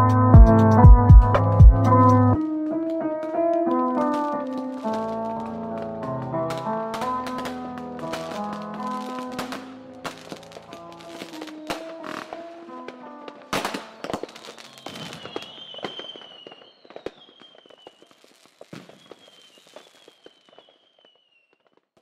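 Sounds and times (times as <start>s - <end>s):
lo-fi beat: 0.0s - 3.2s
fireworks crackling and popping: 2.4s - 22.0s
loud firework bangs: 3.3s - 12.5s, 13.4s - 21.2s
thin high whistle: 14.7s - 18.1s.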